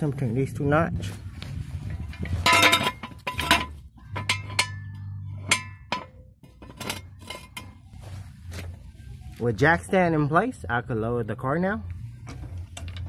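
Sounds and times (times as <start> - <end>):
metal jack stand clinking: 2.1 - 7.8.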